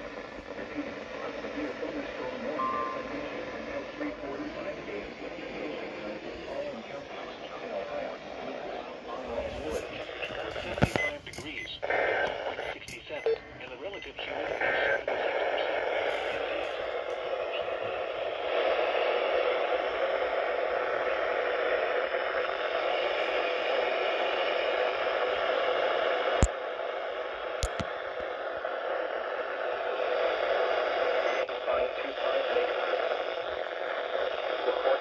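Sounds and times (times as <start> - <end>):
radio static hiss: 0.0 - 35.0
sharp clicks: 27.6 - 27.9.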